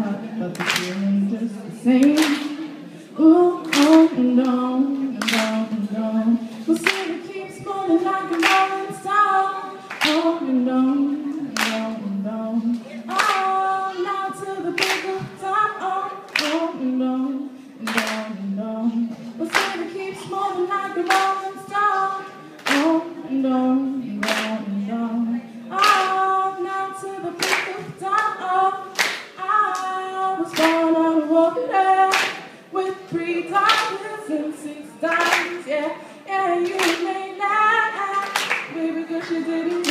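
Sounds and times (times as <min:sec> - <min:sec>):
woman singing: 0:00.0 - 0:39.9
hand claps: 0:00.5 - 0:01.0, 0:02.0 - 0:02.6, 0:03.6 - 0:04.2, 0:05.2 - 0:05.6, 0:06.8 - 0:07.1, 0:08.3 - 0:08.7, 0:09.9 - 0:10.2, 0:11.6 - 0:11.9, 0:13.1 - 0:13.5, 0:14.8 - 0:15.2, 0:16.3 - 0:16.6, 0:17.9 - 0:18.2, 0:19.5 - 0:19.8, 0:21.0 - 0:21.3, 0:22.6 - 0:23.0, 0:24.2 - 0:24.6, 0:25.8 - 0:26.2, 0:27.4 - 0:28.3, 0:29.0 - 0:29.9, 0:30.5 - 0:30.8, 0:32.1 - 0:32.4, 0:33.7 - 0:34.0, 0:35.2 - 0:35.6, 0:36.6 - 0:37.1, 0:38.1 - 0:39.9.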